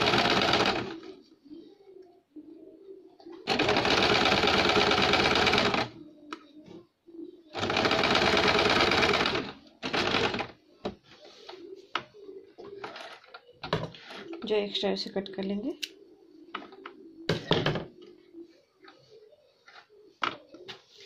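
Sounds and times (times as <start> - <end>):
sewing machine stitching: 0.0 - 0.9, 3.5 - 5.9.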